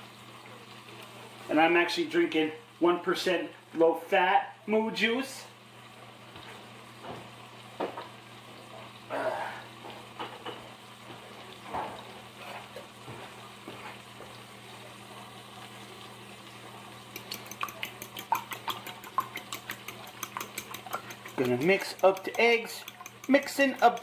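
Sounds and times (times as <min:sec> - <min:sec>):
dishes knocking and clinking: 0:10.2 - 0:10.7, 0:17.1 - 0:24.0
dishes clattering: 0:17.1 - 0:24.0
whisk clicking against bowl: 0:17.1 - 0:24.0.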